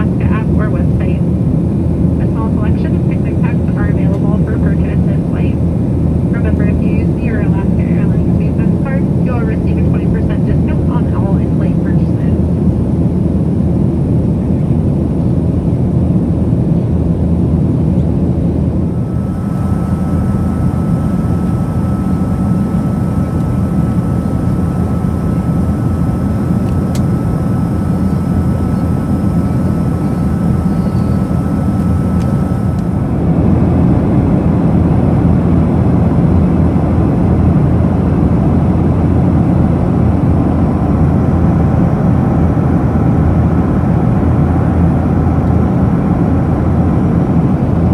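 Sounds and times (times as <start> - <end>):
airliner cabin rumble: 0.0 - 47.9
faint steady high tone: 27.2 - 32.8.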